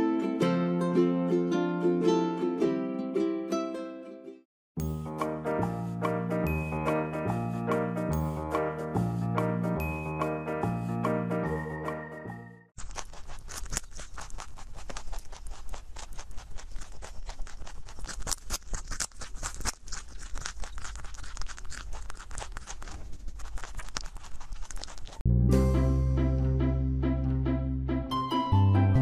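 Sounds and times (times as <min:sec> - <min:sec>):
rabbit chewing carrot: 0:12.8 - 0:25.3.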